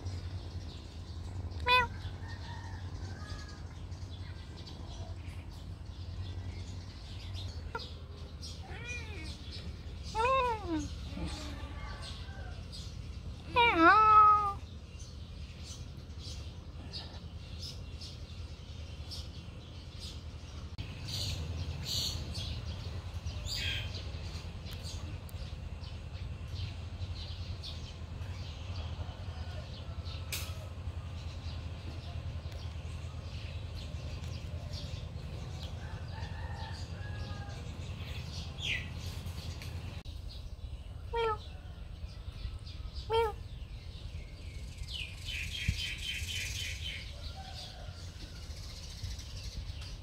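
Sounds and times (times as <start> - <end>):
steady low rumble: 14.5 - 41.2.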